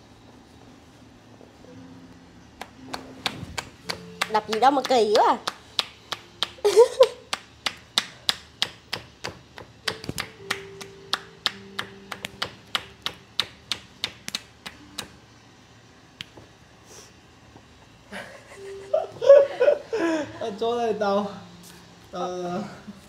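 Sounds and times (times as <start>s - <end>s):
hands tapping and slapping body: 2.6s - 6.6s, 7.3s - 15.2s
person speaking: 3.8s - 5.5s.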